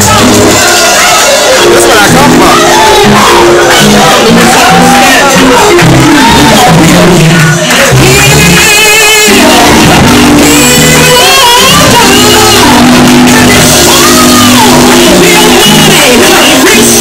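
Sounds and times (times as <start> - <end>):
loud live band with drums: 0.0 - 17.0
voices shouting and singing: 0.0 - 17.0.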